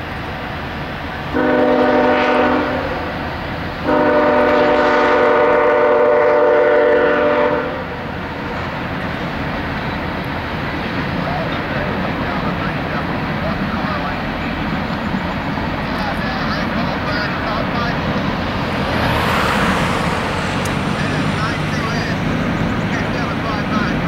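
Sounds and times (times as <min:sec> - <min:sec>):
rumble of passing train: 0:00.0 - 0:24.0
locomotive air horn blasts: 0:01.3 - 0:03.2, 0:03.8 - 0:08.0.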